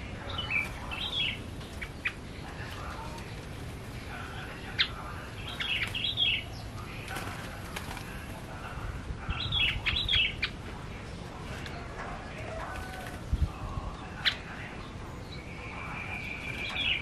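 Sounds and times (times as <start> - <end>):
bird chirping song: 0.0 - 7.2, 9.2 - 17.0
bird wings fluttering: 7.0 - 8.4.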